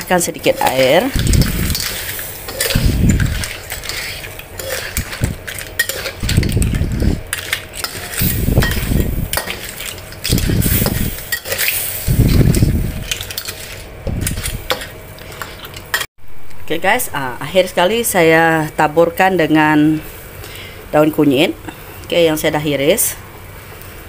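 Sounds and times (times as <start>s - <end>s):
metal spatula scraping wok: 0.0s - 16.1s.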